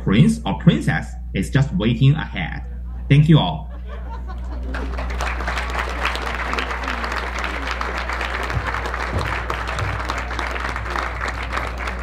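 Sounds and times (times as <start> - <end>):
low hum: 0.0 - 12.0
audience applauding: 4.4 - 12.0.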